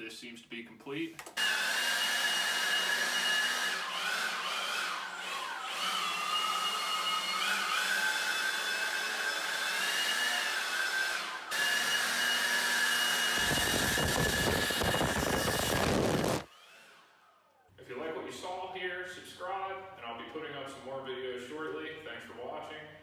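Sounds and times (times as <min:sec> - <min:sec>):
leaf blower whine: 0:01.4 - 0:17.2
air blast rushing on microphone: 0:13.4 - 0:16.5.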